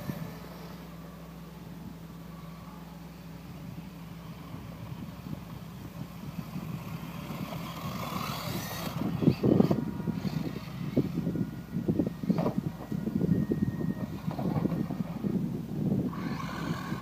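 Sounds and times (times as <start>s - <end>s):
tyres running over ground: 0.0s - 17.0s
electric motor whining: 3.4s - 17.0s.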